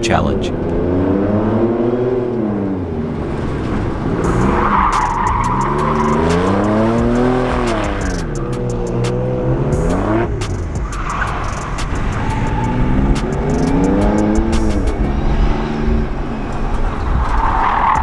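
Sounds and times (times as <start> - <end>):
truck engine accelerating hard: 0.0 - 18.0
tyre squeal: 4.3 - 6.7, 10.9 - 13.8.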